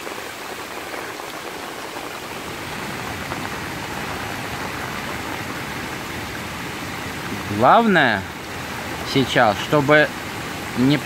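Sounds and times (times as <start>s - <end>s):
steady rain falling: 0.0s - 11.0s
water running over rock: 0.0s - 11.0s.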